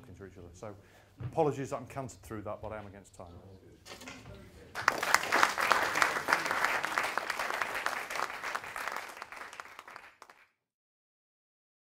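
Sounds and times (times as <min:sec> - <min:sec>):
audience applauding: 0:04.8 - 0:10.6.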